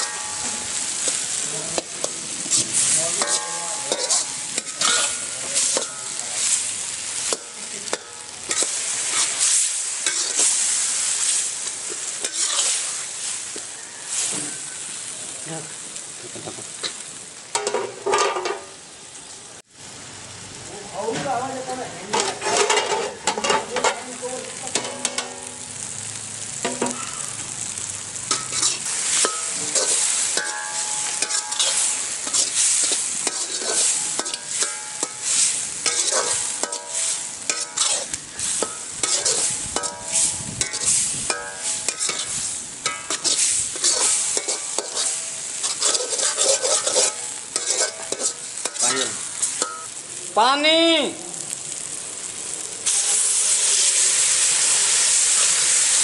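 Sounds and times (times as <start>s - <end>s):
onions sizzling in a pan: 0.0s - 56.0s
spatula scraping a pan: 1.8s - 14.6s, 22.1s - 24.0s, 28.3s - 49.9s.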